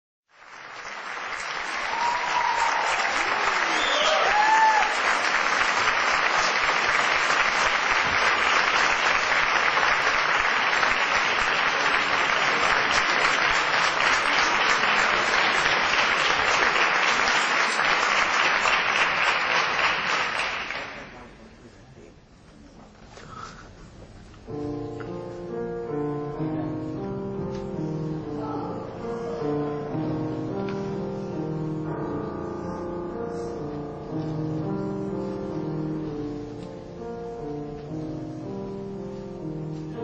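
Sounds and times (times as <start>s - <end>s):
audience applauding: 0.3s - 21.3s.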